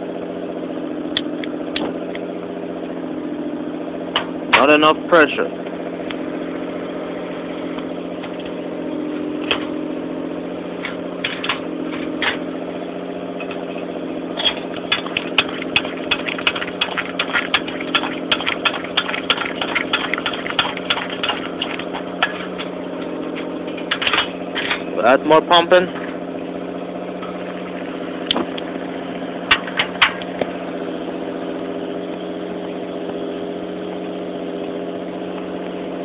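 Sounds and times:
steady low hum: 0.0 - 36.0
fuel pump clicks: 10.8 - 12.4, 13.4 - 24.9, 27.2 - 28.7, 29.5 - 30.6.

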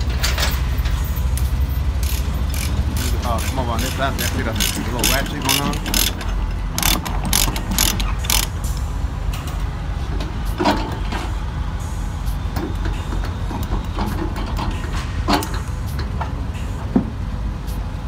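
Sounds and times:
steady low rumble: 0.0 - 18.0
ratchet pawl clicking: 1.4 - 8.8.

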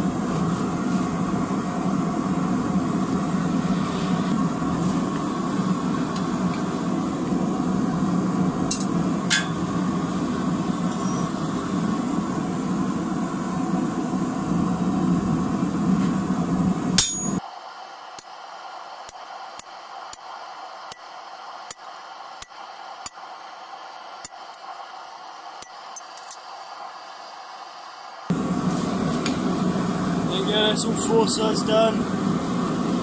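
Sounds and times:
forge humming: 0.0 - 33.0
ringing metal strike: 17.0 - 17.4
sharp metal clinks: 17.0 - 17.4.

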